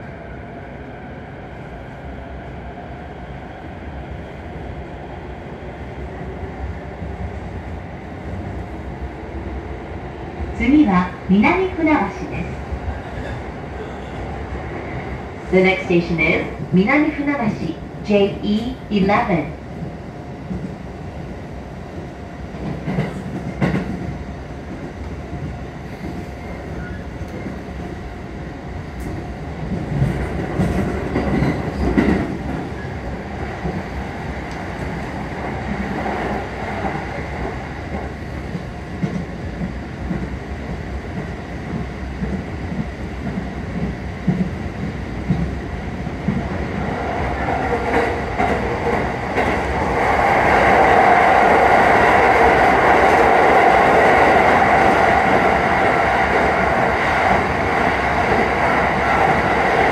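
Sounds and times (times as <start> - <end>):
train wheels rumbling and clattering: 3.2 - 59.9.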